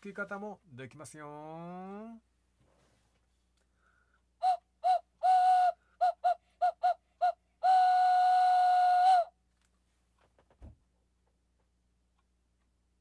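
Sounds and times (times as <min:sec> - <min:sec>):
whistle toots: 0:04.4 - 0:09.3.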